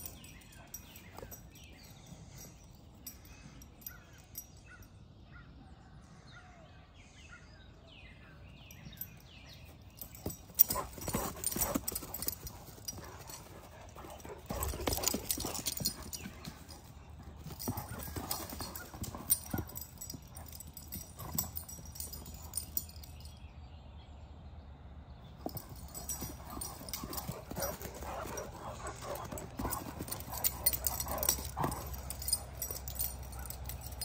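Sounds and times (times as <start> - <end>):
dog paws thudding and scuffling: 10.0 - 22.9, 25.4 - 34.0.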